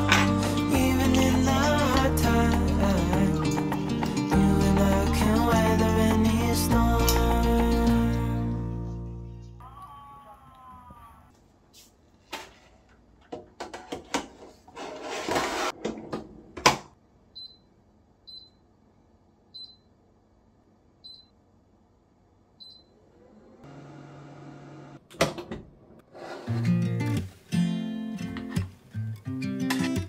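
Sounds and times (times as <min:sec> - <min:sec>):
metal tray clattering and scraping: 0:13.6 - 0:15.9.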